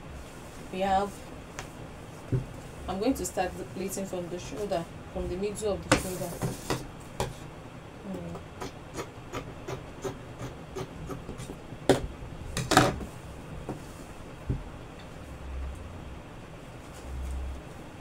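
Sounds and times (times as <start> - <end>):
soft knock: 2.3 - 2.5.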